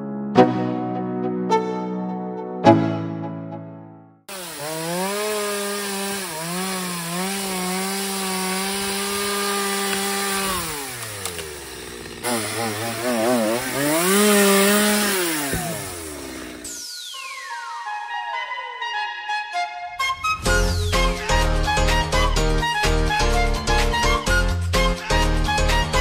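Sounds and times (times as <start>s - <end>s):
chainsaw cutting and idling: 4.3s - 17.5s.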